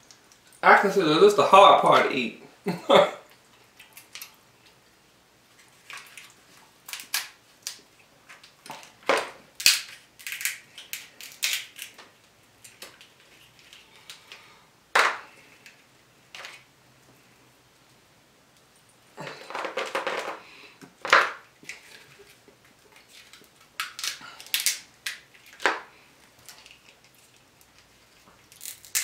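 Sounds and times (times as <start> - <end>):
crab shell cracking: 3.7 - 4.4, 5.8 - 7.8, 9.6 - 12.0, 23.0 - 29.0.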